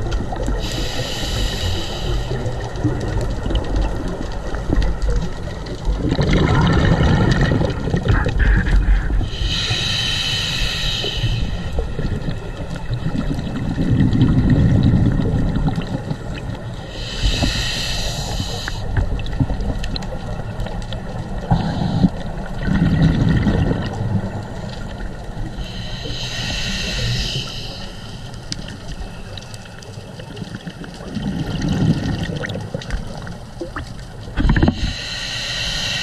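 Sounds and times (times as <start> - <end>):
rumble of exhaled bubbles: 0.0 - 9.7, 11.3 - 35.0
hissing regulator inhalation: 0.6 - 2.7, 8.6 - 11.9, 16.8 - 19.0, 21.5 - 22.3, 25.6 - 30.0, 34.4 - 36.0.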